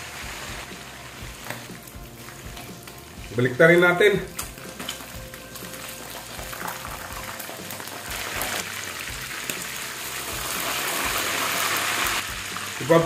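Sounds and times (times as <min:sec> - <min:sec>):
fish frying in oil: 0:00.0 - 0:13.0.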